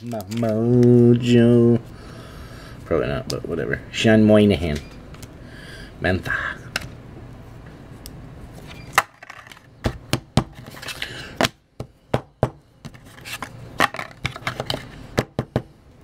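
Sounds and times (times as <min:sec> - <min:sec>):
cards rustling: 0:00.0 - 0:01.3.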